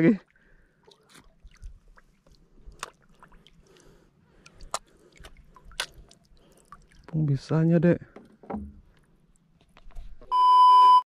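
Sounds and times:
seawater splashing and dripping: 0:00.0 - 0:07.6.

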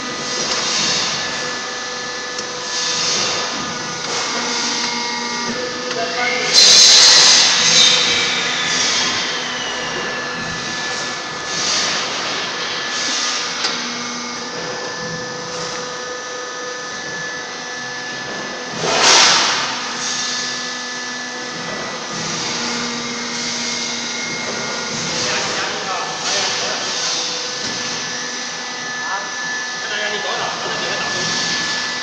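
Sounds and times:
machinery motor humming: 0:00.0 - 0:32.0.

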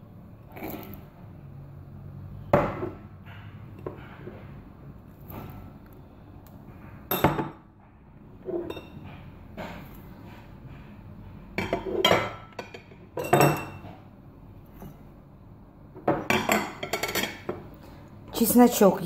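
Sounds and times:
utensils clinking against ceramic bowl: 0:08.4 - 0:09.0, 0:11.6 - 0:13.9, 0:16.1 - 0:17.6.

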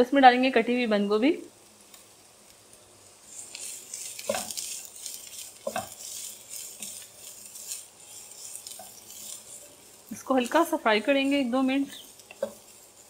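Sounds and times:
vegetables sizzling in hot oil: 0:00.0 - 0:13.0
spatula scraping a pan: 0:03.2 - 0:13.0.

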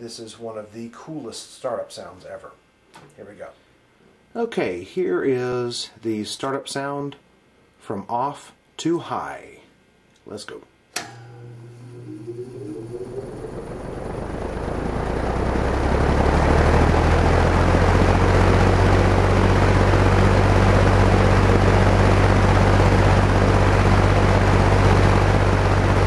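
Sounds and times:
box fan motor whine and hum: 0:11.0 - 0:26.0
fan air rush: 0:11.9 - 0:26.0.

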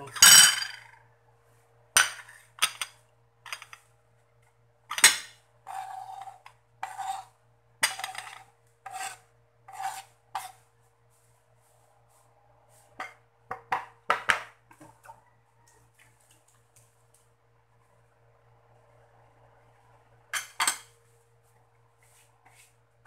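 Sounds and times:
knife scraping cutting board: 0:05.7 - 0:07.3, 0:07.9 - 0:10.6.

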